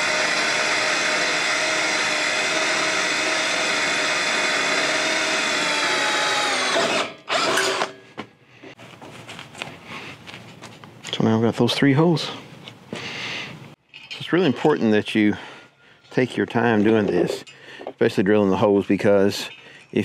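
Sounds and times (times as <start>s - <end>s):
cordless drill whining: 0.0s - 8.0s.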